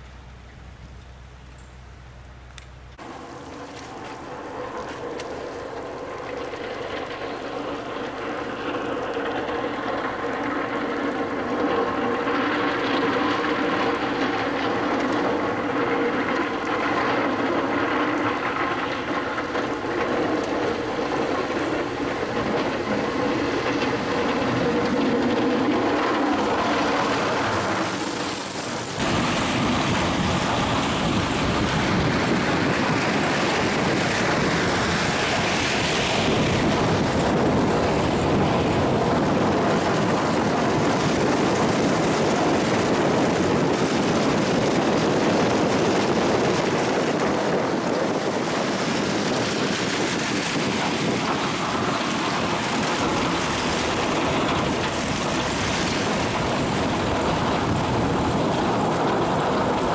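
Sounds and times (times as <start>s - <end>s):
truck engine running: 0.0s - 59.9s
plow blade scraping snow: 2.9s - 59.9s.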